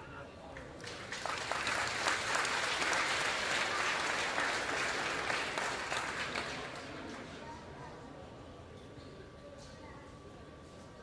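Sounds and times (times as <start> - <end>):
crowd applauding: 0.6 - 7.2.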